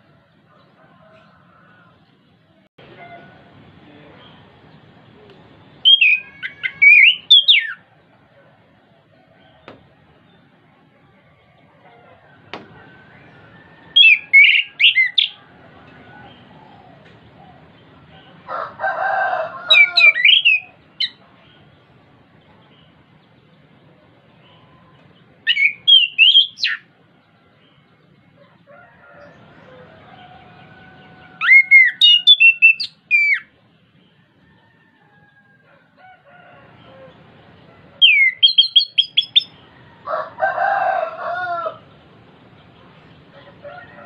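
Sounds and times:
harsh bird call: 5.8s - 7.9s, 12.4s - 15.5s, 16.1s - 21.2s, 24.5s - 26.9s, 29.7s - 33.6s, 38.0s - 41.9s
thrush singing whistled notes: 5.8s - 7.9s, 13.0s - 15.4s, 19.7s - 21.2s, 25.5s - 26.9s, 31.4s - 33.5s, 38.0s - 39.6s.

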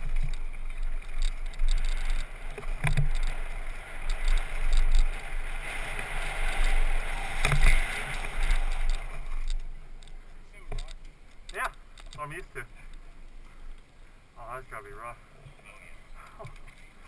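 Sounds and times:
wind rush on microphone: 0.0s - 9.7s
bike tyres on gravel: 0.0s - 14.8s.

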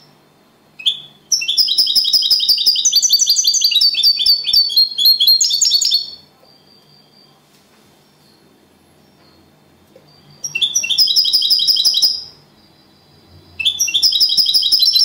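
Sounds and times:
finch chirping song: 0.8s - 7.3s, 10.1s - 15.0s.

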